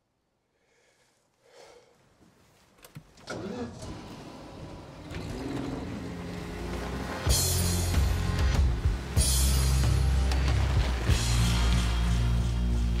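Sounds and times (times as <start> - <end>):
van engine running loudly: 4.4 - 13.0.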